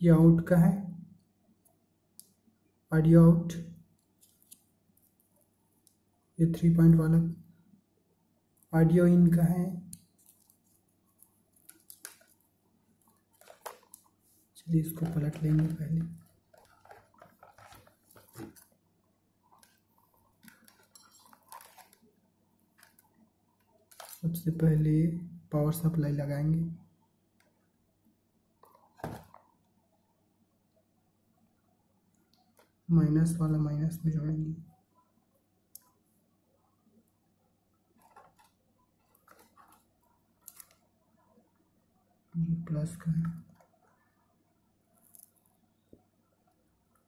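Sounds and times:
circuit board and wires rustling: 0:08.6 - 0:18.8, 0:19.4 - 0:24.7, 0:37.9 - 0:41.0.

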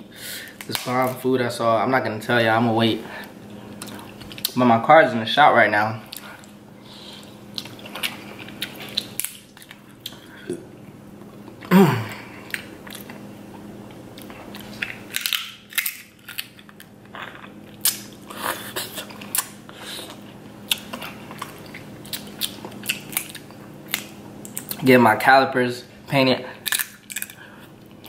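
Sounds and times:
chewing and wet mouth sounds: 0:03.4 - 0:04.6, 0:07.2 - 0:10.6, 0:12.4 - 0:24.8, 0:26.6 - 0:28.0
crab shells cracking: 0:14.5 - 0:17.1, 0:20.7 - 0:24.7, 0:26.6 - 0:27.4.

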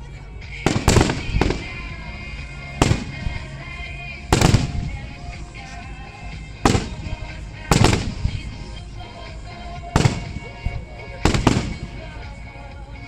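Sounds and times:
firework shells booming: 0:00.7 - 0:02.0, 0:02.8 - 0:03.6, 0:04.3 - 0:05.1, 0:06.6 - 0:08.5, 0:10.0 - 0:12.2.

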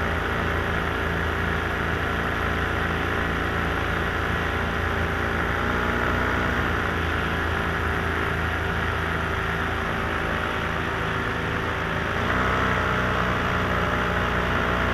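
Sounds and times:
small aircraft engine: 0:00.0 - 0:14.9.

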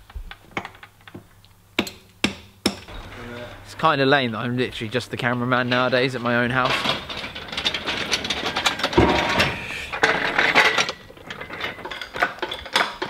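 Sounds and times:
metal clanking and rattling: 0:02.9 - 0:13.0
heavy thump: 0:08.9 - 0:10.0.

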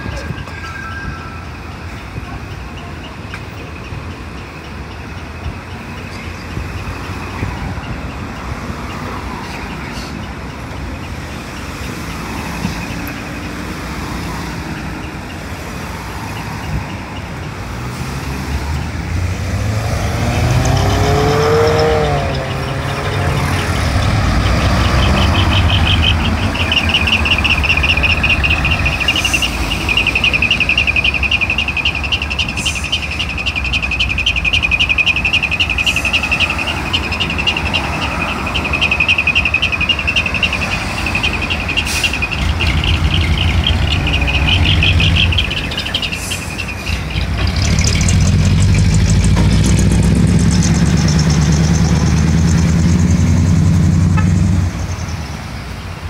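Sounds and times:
diesel truck engine revving: 0:17.5 - 0:55.4.

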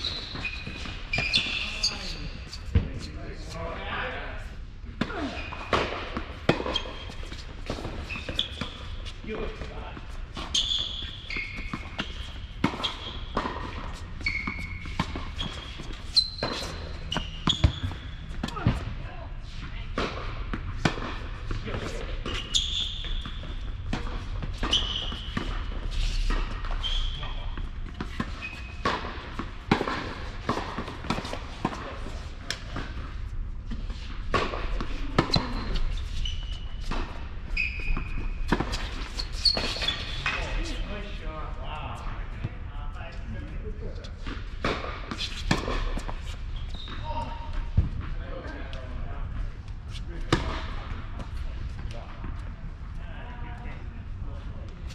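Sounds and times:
sneakers squeaking on court: 0:00.0 - 0:03.1, 0:05.2 - 0:19.0, 0:21.8 - 0:33.0, 0:34.3 - 0:40.8, 0:44.7 - 0:48.0
ball bouncing on court: 0:10.4 - 0:18.9, 0:46.7 - 0:48.1.

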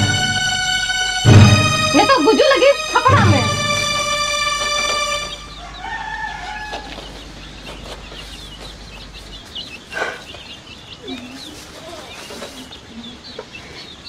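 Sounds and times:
music: 0:00.0 - 0:05.6
rooster crowing: 0:03.6 - 0:07.2
chickens clucking and chirping: 0:03.9 - 0:14.0.

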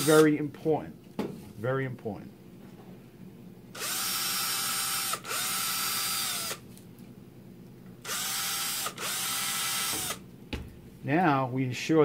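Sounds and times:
cordless drill whining: 0:00.0 - 0:00.2, 0:03.8 - 0:06.6, 0:08.0 - 0:10.2.

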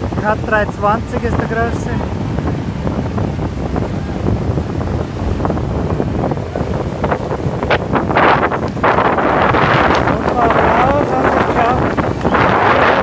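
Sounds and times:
breaking surf: 0:00.0 - 0:13.0
wind buffeting microphone: 0:00.0 - 0:13.0.

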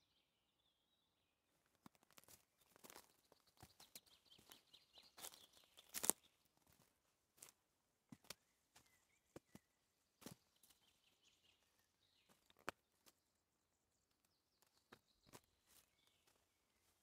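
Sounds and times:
footsteps crunching on twigs: 0:01.8 - 0:09.6.

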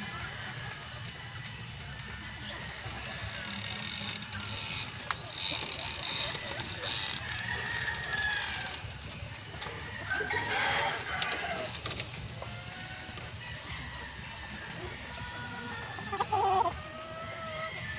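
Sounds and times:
hens clucking: 0:00.0 - 0:17.9
rooster crowing: 0:05.4 - 0:08.9, 0:09.8 - 0:11.9.

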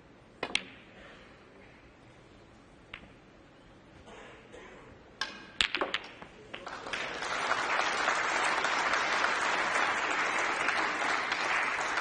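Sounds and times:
snooker balls clicking: 0:00.4 - 0:00.9, 0:05.2 - 0:06.7
cue striking ball: 0:05.3 - 0:06.3
audience applause: 0:06.6 - 0:12.0.

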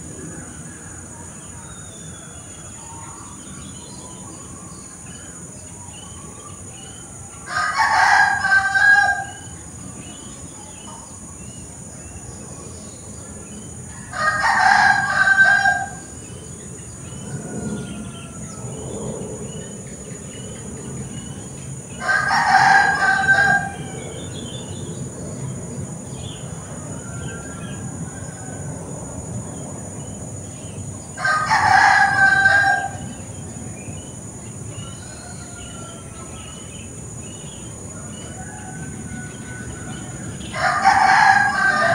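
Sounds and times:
rooster crowing: 0:07.4 - 0:09.5, 0:13.9 - 0:16.1, 0:22.0 - 0:24.4, 0:26.6 - 0:28.8, 0:31.2 - 0:33.2, 0:34.7 - 0:36.7, 0:37.9 - 0:41.9.

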